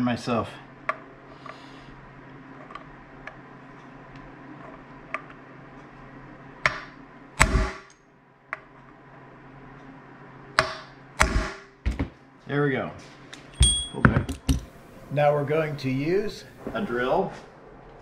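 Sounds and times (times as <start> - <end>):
hammer striking steel punch: 6.7 - 7.9, 10.6 - 11.7.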